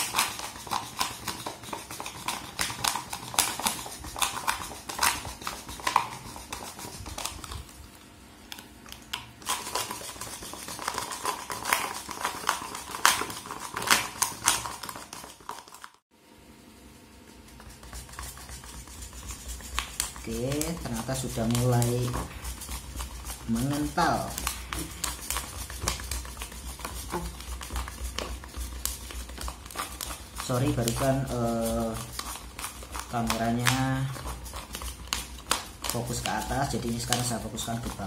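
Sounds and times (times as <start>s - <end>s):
whisk clicking against plastic container: 17.6s - 38.0s.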